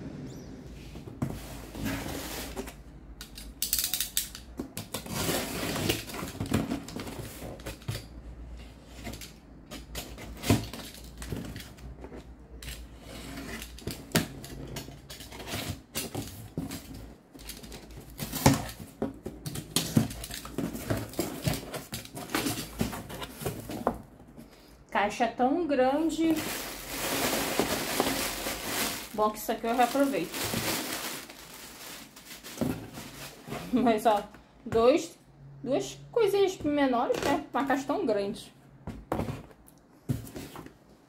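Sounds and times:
rustling: 26.1s - 33.9s.

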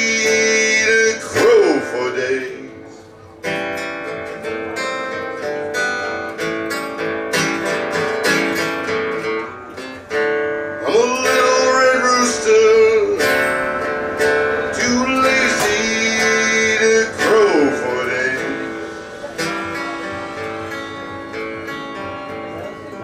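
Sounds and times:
acoustic guitar strumming: 0.0s - 23.0s
sliding melody line: 11.2s - 23.0s.

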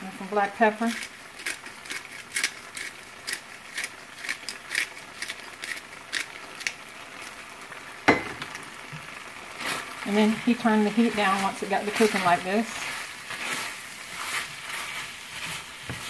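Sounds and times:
pepper grinder clicking: 0.9s - 6.8s.

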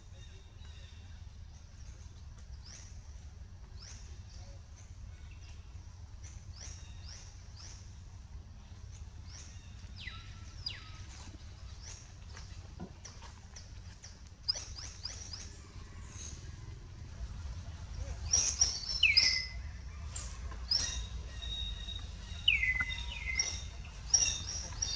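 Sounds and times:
steady low rumble: 15.3s - 24.9s.

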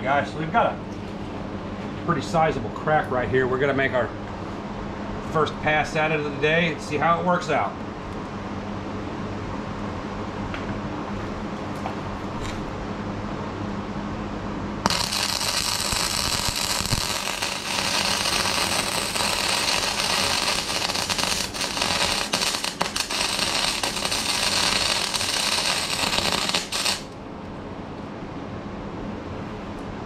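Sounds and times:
steady low hum: 0.0s - 30.0s
welder arc crackling: 14.8s - 27.2s.

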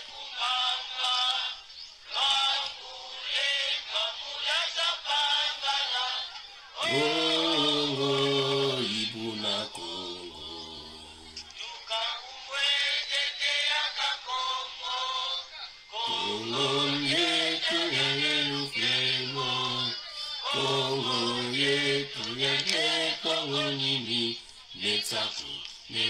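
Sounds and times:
person singing slowly: 6.8s - 13.2s, 16.0s - 26.0s.

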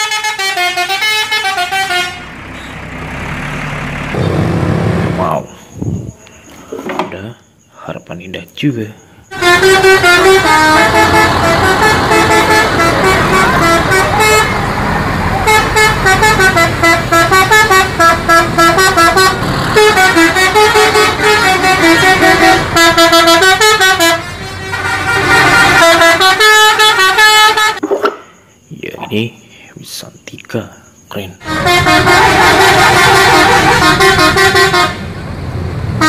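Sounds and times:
musical bus horn playing a tune: 0.0s - 2.9s, 9.3s - 27.8s, 31.4s - 35.2s.

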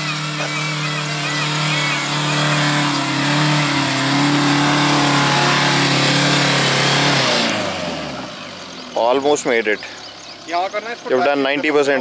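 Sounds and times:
tyres churning mud: 0.0s - 8.4s
diesel engine at high revs: 0.0s - 12.0s.

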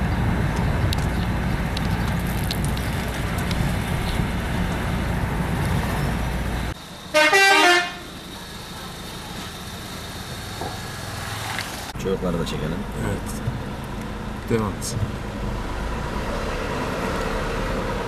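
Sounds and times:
car engine and road rumble: 0.0s - 18.0s.

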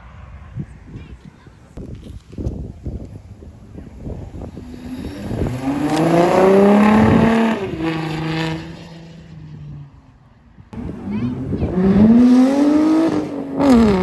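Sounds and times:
sports car engine accelerating: 3.6s - 14.0s.

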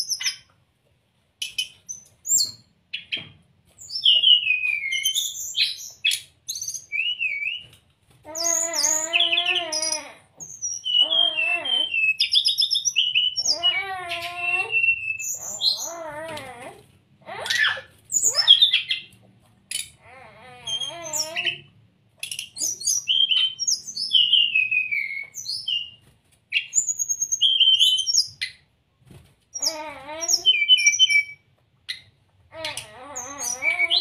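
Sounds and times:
bird singing whistled notes: 3.9s - 7.6s, 22.3s - 26.0s, 30.4s - 31.4s.

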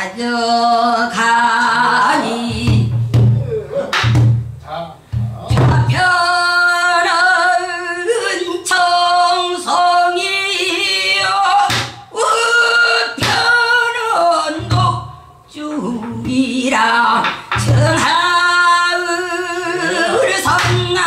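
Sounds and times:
low thumps: 2.5s - 6.2s, 14.6s - 15.1s.

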